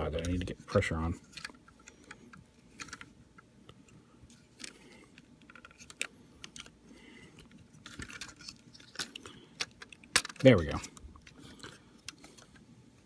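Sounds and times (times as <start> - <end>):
plastic toy parts clicking: 4.6 - 6.8, 7.4 - 11.4.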